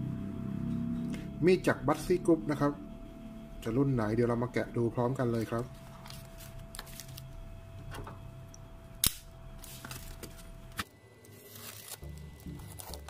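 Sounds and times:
knife slitting packing tape: 11.3 - 13.0.

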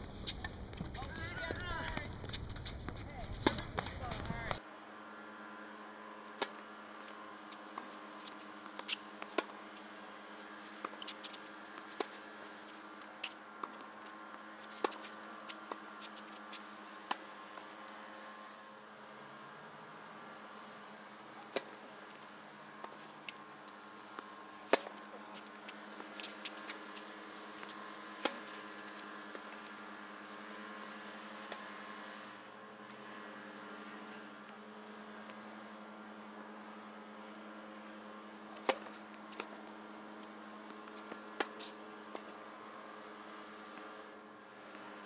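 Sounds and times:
steady low hum: 0.0 - 45.0
tennis ball bouncing: 0.2 - 4.6, 6.4 - 6.6, 7.6 - 17.8, 21.4 - 32.0, 38.5 - 39.7, 40.4 - 42.3
tennis ball struck by racket: 8.6 - 9.7, 10.7 - 13.8, 14.6 - 17.7, 21.4 - 21.9, 24.2 - 29.7, 38.5 - 39.6, 40.7 - 42.3.

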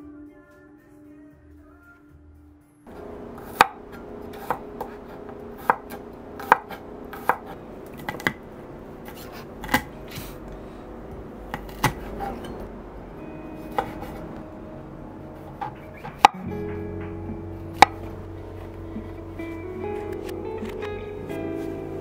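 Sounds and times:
knife chopping on wooden board: 5.6 - 8.4, 11.5 - 12.4, 13.7 - 14.2.

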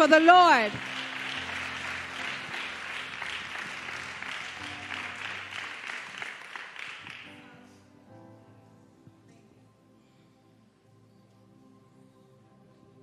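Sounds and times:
crowd applauding: 0.0 - 7.5.

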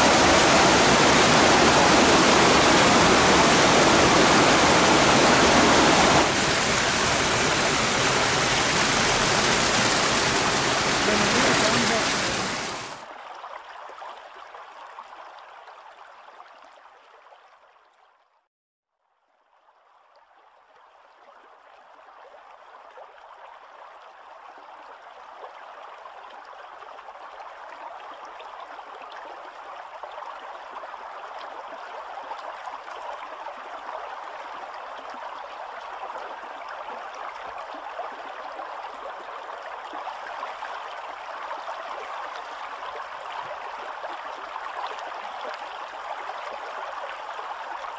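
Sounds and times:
stream rushing over rocks: 0.0 - 13.0.

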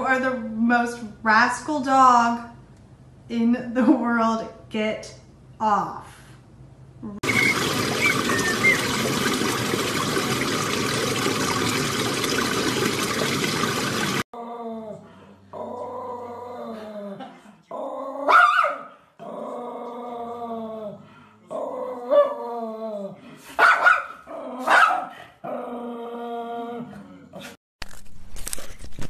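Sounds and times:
puppy yelping: 7.2 - 9.0
puppy whining and growling: 7.2 - 9.1, 14.4 - 18.3.

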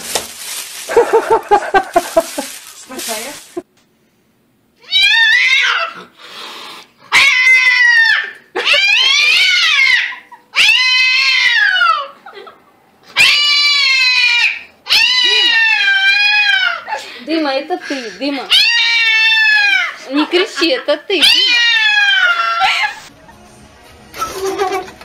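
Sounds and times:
cat yowling: 4.8 - 6.1, 7.1 - 12.2, 13.2 - 17.0, 18.5 - 20.0, 21.2 - 23.1.

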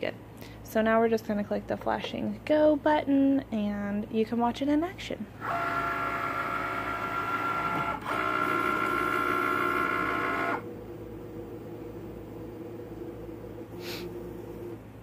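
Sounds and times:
cutting machine motor whine: 5.4 - 14.9.

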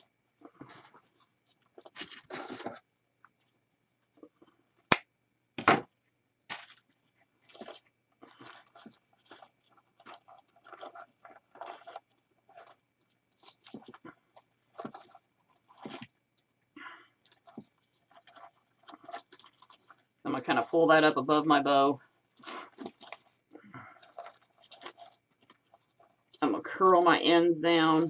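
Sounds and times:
knock: 5.6 - 5.9.

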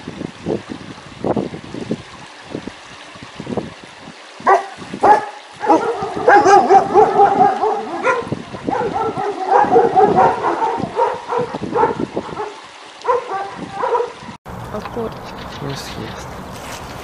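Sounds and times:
dogs yelping and barking: 4.4 - 14.3.

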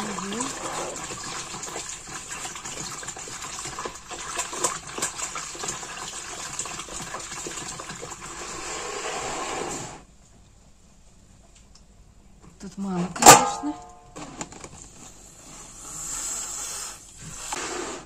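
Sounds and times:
water running: 0.0 - 8.9.

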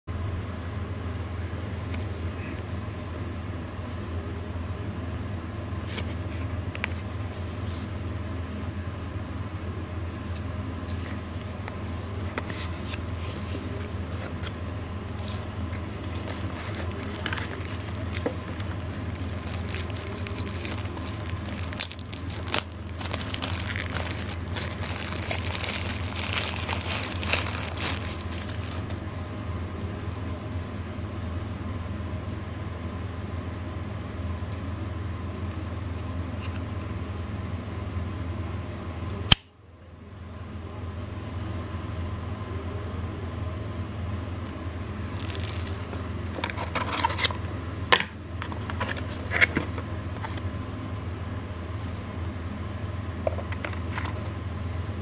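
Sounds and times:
steady low hum: 0.1 - 55.0
cardboard box handled and opened: 10.9 - 28.9, 45.1 - 47.3
wrapper crinkling: 11.2 - 13.9, 15.1 - 28.9, 45.0 - 47.3.

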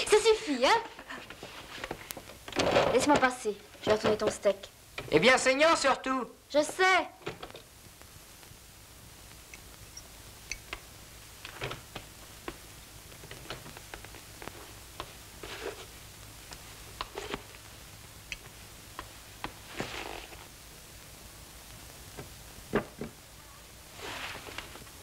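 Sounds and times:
scraping rustles: 15.4 - 16.0, 23.9 - 24.9.

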